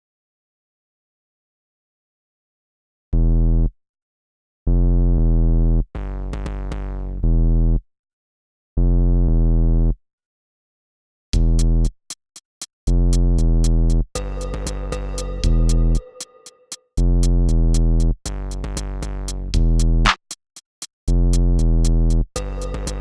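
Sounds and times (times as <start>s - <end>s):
deep buzzing synth note: 12.9s - 16.2s, 22.4s - 23.0s
falling electronic sweeps: 14.2s - 16.6s.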